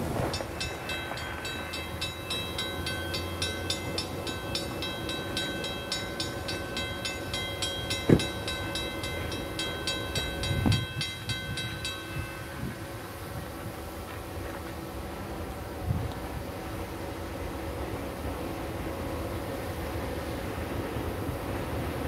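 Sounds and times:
crossing warning bell ringing: 0.0 - 13.9.

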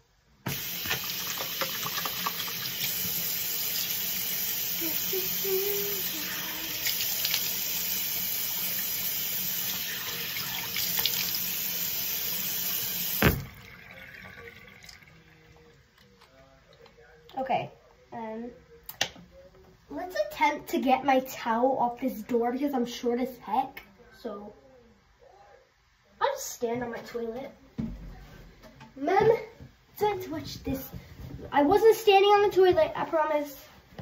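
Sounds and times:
tap running hard: 0.4 - 3.2, 13.0 - 13.6.

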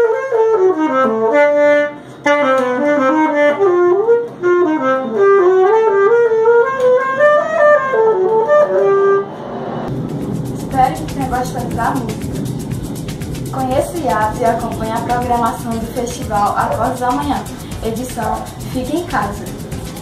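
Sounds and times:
solo saxophone melody: 0.0 - 9.3.

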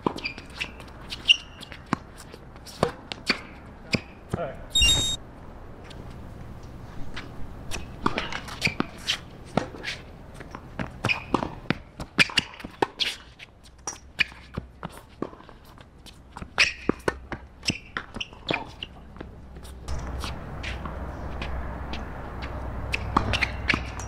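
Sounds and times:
rackets hitting tennis ball: 22.8 - 24.0.

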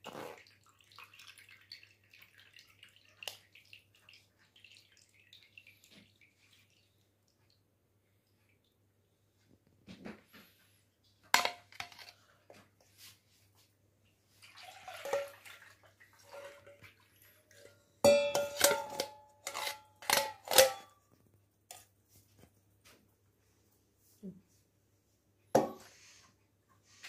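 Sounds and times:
utensil clinking on jar and dishes: 17.6 - 20.9.

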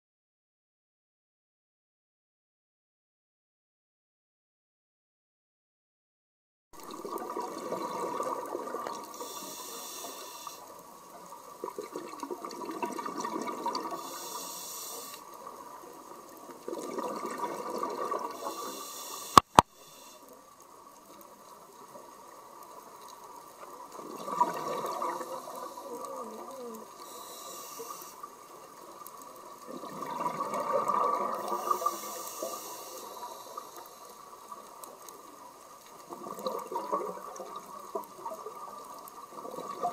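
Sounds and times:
exhaled bubbles rushing: 6.8 - 9.2, 11.6 - 14.0, 16.6 - 18.5, 23.9 - 26.9, 29.6 - 31.9, 36.1 - 38.6
diver breathing through regulator: 9.1 - 10.7, 13.9 - 15.3, 18.3 - 20.4, 24.7 - 28.3, 31.4 - 34.2.

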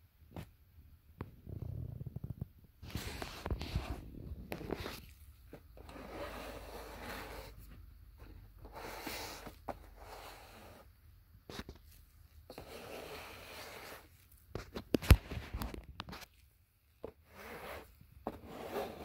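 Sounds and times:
fingers rubbing cardboard: 2.9 - 7.8, 8.6 - 10.9, 11.5 - 14.7, 17.0 - 19.0.

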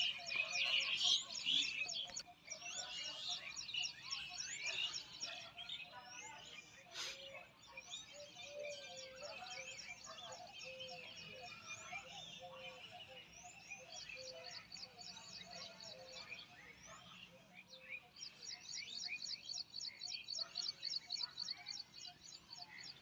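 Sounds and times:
birds chirping: 0.0 - 23.0.

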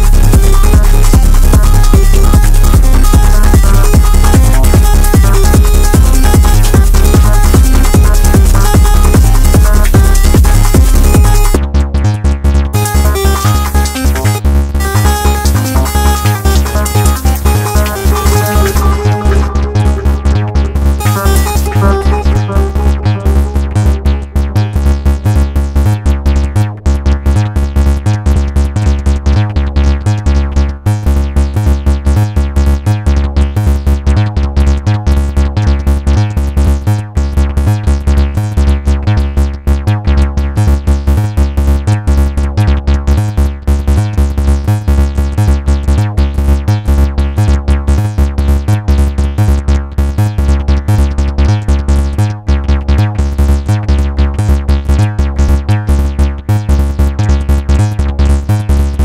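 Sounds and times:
techno kick drum pulse: 0.0 - 59.0
held synth tones: 12.8 - 24.4.

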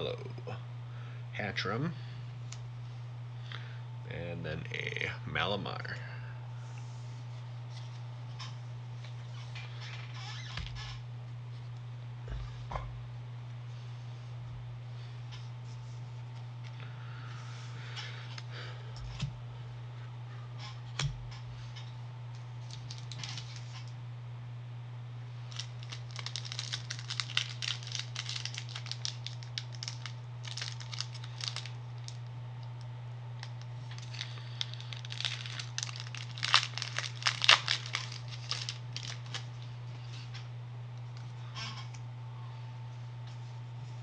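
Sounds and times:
low electrical hum: 0.0 - 44.0
foil wrapper crinkling and tearing: 22.6 - 23.9, 25.5 - 32.3, 33.4 - 39.8.

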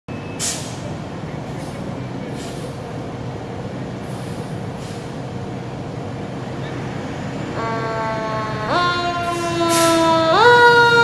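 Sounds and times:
air brake hisses: 0.4 - 0.8, 1.6 - 2.8, 4.0 - 5.2, 9.5 - 10.0.

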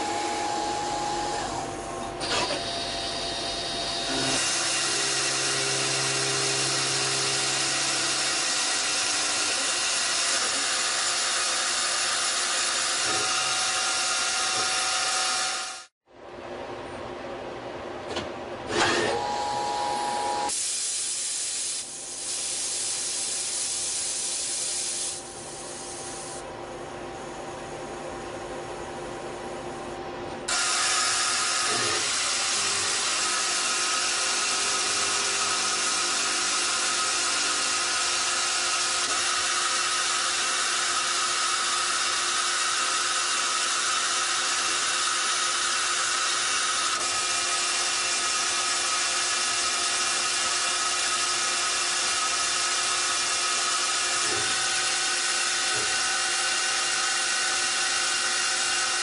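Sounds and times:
lathe hissing and whining: 30.5 - 59.0.

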